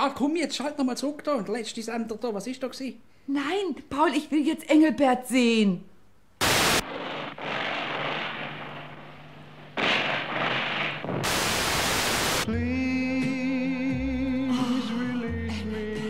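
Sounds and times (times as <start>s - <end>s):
television static hiss: 0.0s - 12.5s.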